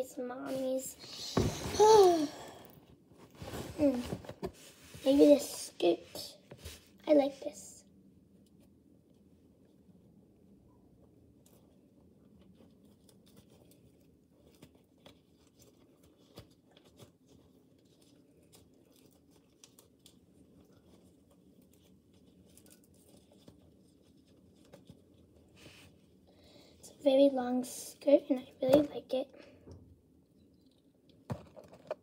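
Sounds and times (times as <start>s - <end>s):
faint clicks and rustles: 11.0s - 32.0s.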